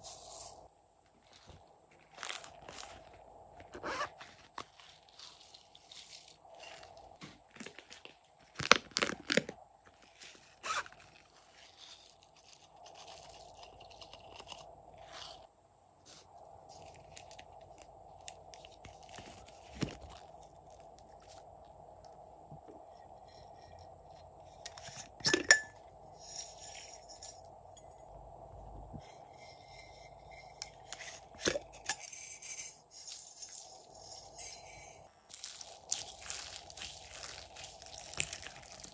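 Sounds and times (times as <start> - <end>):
faint steady hum: 0.0 - 38.9
glitter tinkling into slime: 33.0 - 38.9.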